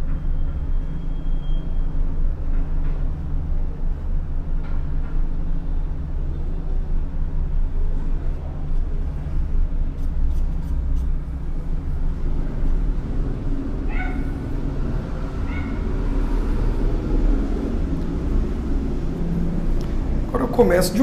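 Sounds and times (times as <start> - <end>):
low background rumble: 2.0 - 21.0.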